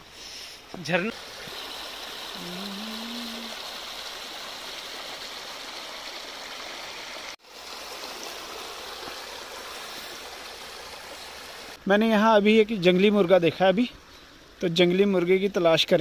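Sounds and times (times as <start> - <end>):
waterfall splashing over rocks: 0.8 - 11.8.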